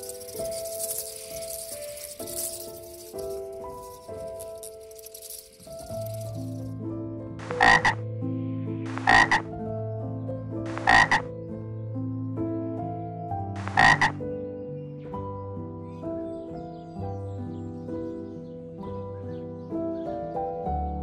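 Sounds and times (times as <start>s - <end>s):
background music with held notes: 0.0s - 21.0s
frog croaks: 7.4s - 8.0s, 8.9s - 9.5s, 10.7s - 11.3s, 13.6s - 14.2s.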